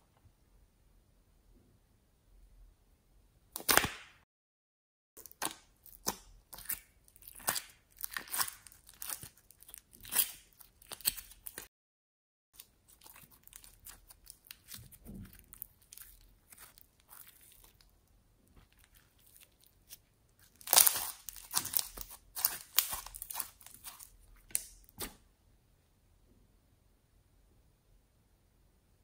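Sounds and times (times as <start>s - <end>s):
slime crackling and popping: 5.2s - 11.7s, 12.6s - 17.9s, 18.6s - 25.2s.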